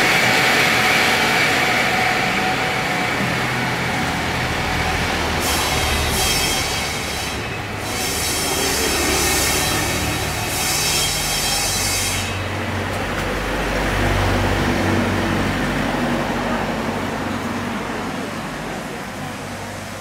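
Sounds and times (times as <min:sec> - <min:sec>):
shrill squealing whine: 0:05.4 - 0:12.4.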